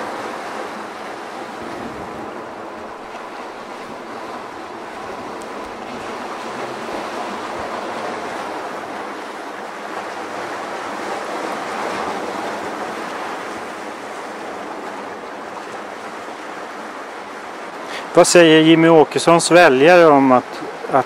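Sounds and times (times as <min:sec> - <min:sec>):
surf washing over rocks: 0:00.0 - 0:21.0.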